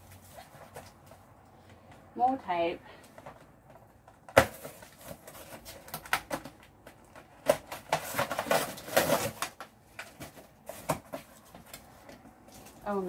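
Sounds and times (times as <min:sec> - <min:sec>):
packing tape peeling: 0:04.4 - 0:11.8.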